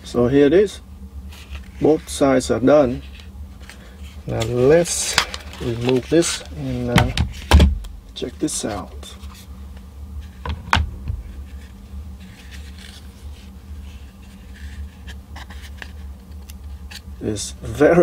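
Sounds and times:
steady low hum: 0.0s - 18.0s
hands rubbing plastic case: 2.9s - 7.5s, 10.2s - 17.1s.

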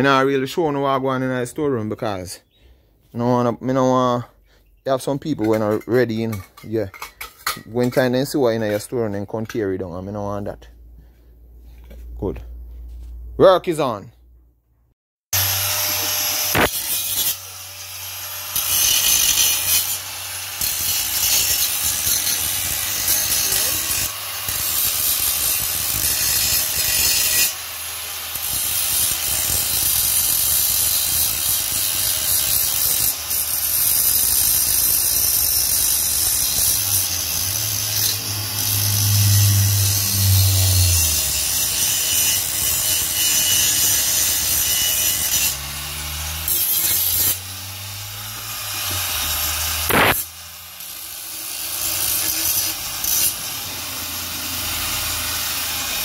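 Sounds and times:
hand tool scraping: 15.7s - 17.6s, 18.3s - 47.5s, 48.2s - 56.0s.

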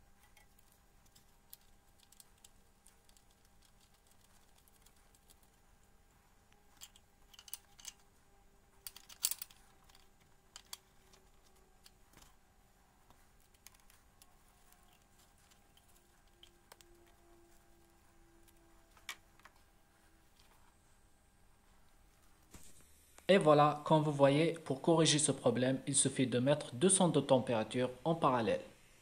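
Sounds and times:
faint steady hum: 0.0s - 29.0s
metallic clicks and taps: 6.7s - 8.1s, 8.8s - 12.4s.

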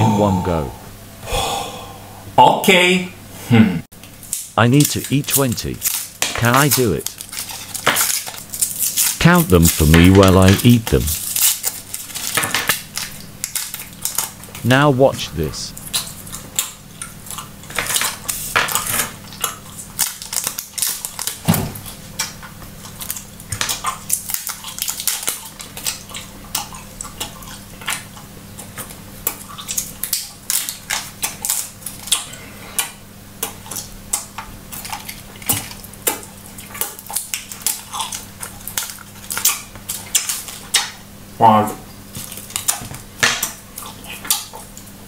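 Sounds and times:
paper wrappers crinkling: 4.8s - 14.4s
faint low hum: 8.4s - 11.5s.

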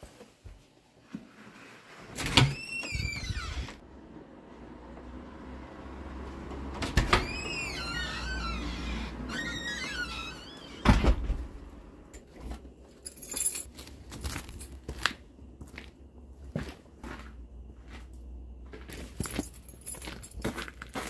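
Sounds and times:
squeaky creak: 2.2s - 3.8s, 7.0s - 11.0s.

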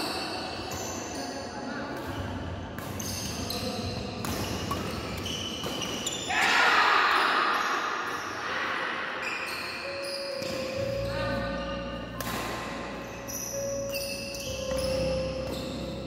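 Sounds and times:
rackets hitting shuttlecock: 2.8s - 6.0s, 10.4s - 11.1s, 12.0s - 13.0s.

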